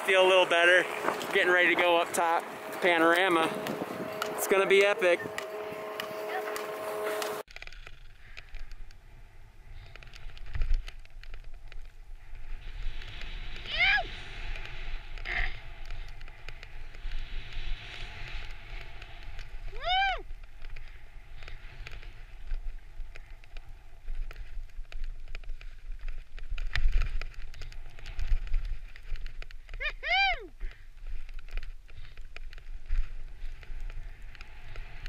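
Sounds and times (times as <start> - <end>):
wind buffeting microphone: 0.0 - 7.4
skis scraping through snow: 0.0 - 8.4, 9.7 - 30.1, 30.7 - 35.0
person whooping: 19.7 - 20.2, 29.8 - 30.5.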